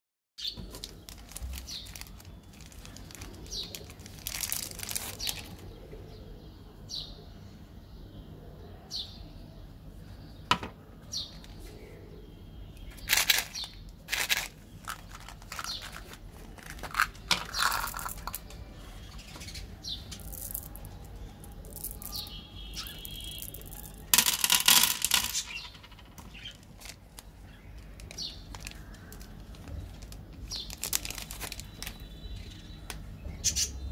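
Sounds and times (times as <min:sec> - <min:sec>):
wrapper tearing: 0:00.6 - 0:05.6, 0:13.1 - 0:18.5, 0:26.2 - 0:32.0
plastic wrappers crinkling: 0:00.6 - 0:05.7, 0:12.9 - 0:18.6, 0:20.0 - 0:32.6.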